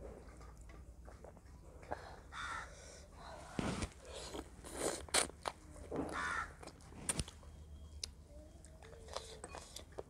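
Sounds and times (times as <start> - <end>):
close chewing: 4.0 - 10.0.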